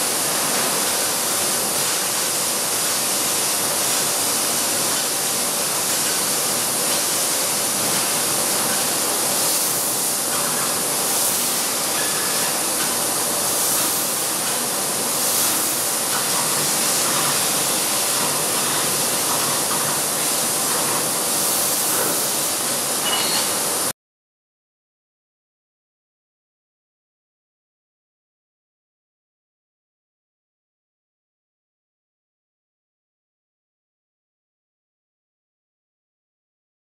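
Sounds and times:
hiss of laser cutter gas jet: 0.0 - 23.9.

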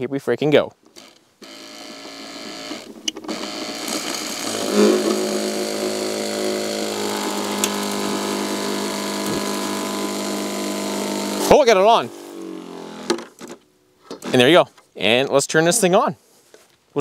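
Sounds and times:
water pump motor humming: 1.4 - 13.2.

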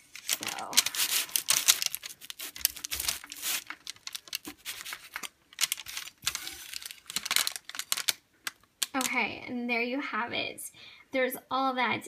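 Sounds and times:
pastry crust crackling and crunching: 0.0 - 9.0.

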